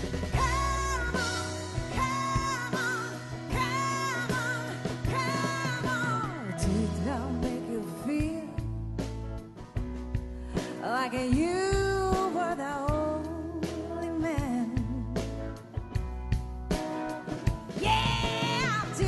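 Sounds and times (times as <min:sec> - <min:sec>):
steady bass line: 0:00.0 - 0:07.4
pop song played by band: 0:00.0 - 0:19.0.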